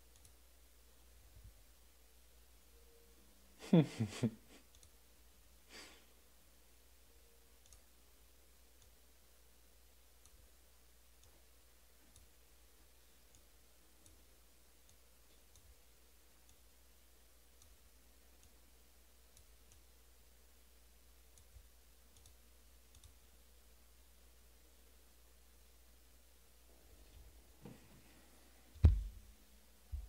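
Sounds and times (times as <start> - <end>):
low steady hum: 0.0 - 30.0
faint clicks: 21.3 - 23.2.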